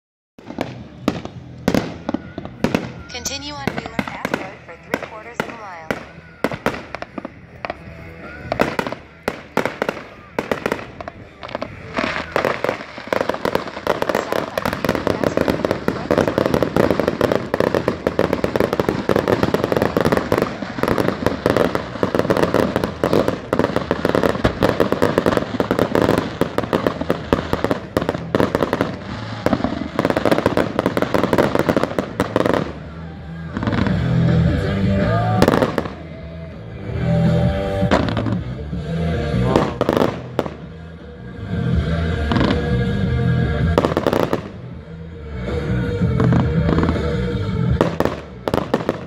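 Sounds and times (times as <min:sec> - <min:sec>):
fireworks bangs and crackling: 0:00.4 - 0:49.0.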